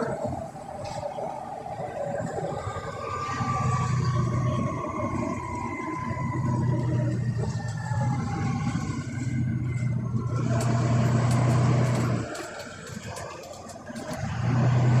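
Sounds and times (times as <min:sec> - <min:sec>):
bus diesel engine drone: 0:00.0 - 0:15.0
bodywork clicks and rattles: 0:05.8 - 0:14.2.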